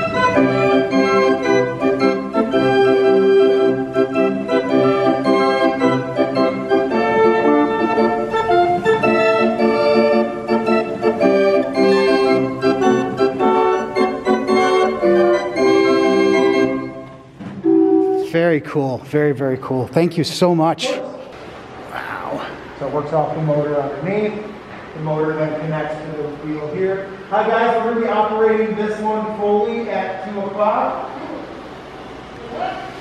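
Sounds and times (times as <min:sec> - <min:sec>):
band organ playing lively tune: 0:00.0 - 0:18.3.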